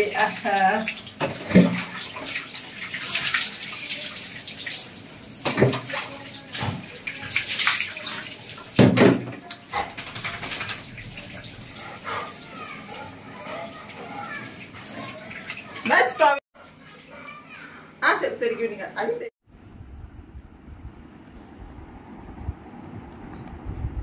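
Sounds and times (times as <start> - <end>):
water splashing onto tiled floor: 0.0 - 19.1.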